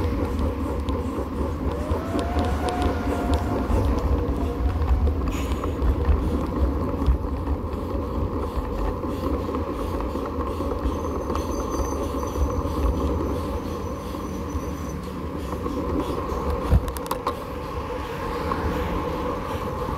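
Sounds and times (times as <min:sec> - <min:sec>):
road rumble: 0:00.0 - 0:19.9
wind buffeting: 0:00.0 - 0:19.9.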